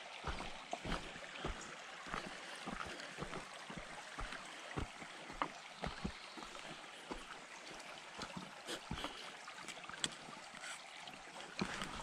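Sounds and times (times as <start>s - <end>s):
creek trickling over rocks: 0.0s - 12.0s
footsteps on a dirt trail: 0.1s - 9.2s, 11.6s - 12.0s.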